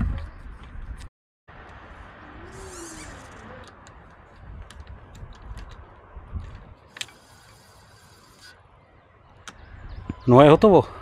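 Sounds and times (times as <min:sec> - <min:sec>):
bicycle parts and tools clicking: 0:02.6 - 0:08.6
short hiss-like rustle: 0:06.9 - 0:08.6.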